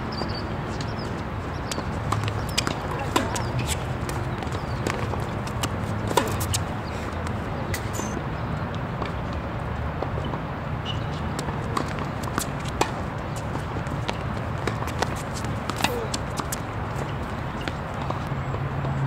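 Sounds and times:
tennis balls struck and bouncing: 0.2s - 8.1s, 10.0s - 19.0s
faint voices: 2.6s - 4.1s, 15.7s - 16.4s.

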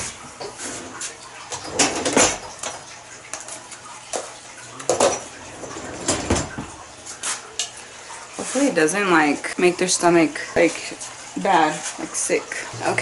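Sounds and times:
dishes and utensils clattering: 0.0s - 7.8s.

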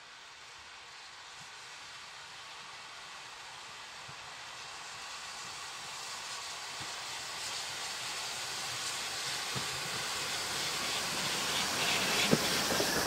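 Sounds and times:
steam locomotive approaching: 0.0s - 13.0s.

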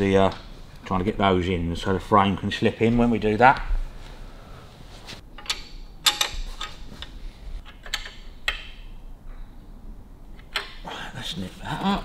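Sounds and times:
spanner and bolts clinking: 5.3s - 9.0s.

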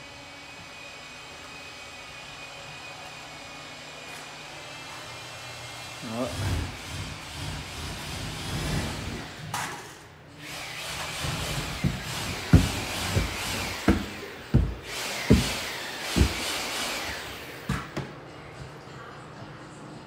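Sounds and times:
footsteps on wooden stairs: 11.3s - 16.6s.

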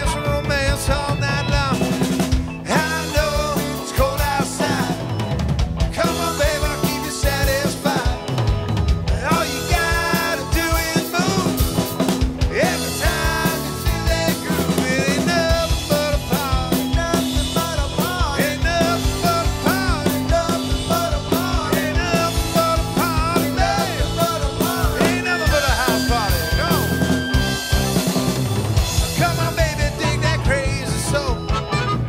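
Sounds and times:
drum kit steady beat: 0.0s - 32.0s
electric bass: 0.0s - 32.0s
electric guitars: 0.0s - 32.0s.

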